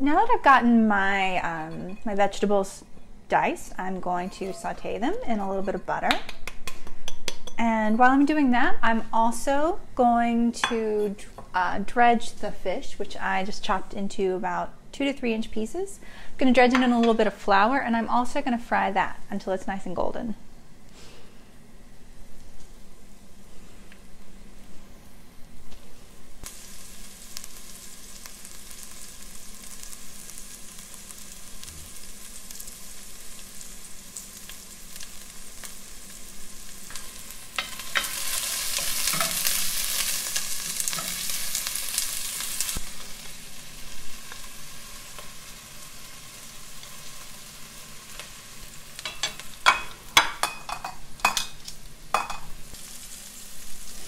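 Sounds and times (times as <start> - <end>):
vegetables sizzling in butter: 0.0 - 6.0, 25.8 - 54.0.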